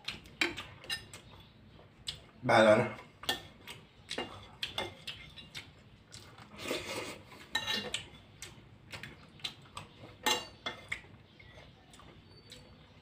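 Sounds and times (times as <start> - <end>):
fork clinking on glass dish: 7.5 - 8.1, 10.2 - 11.0.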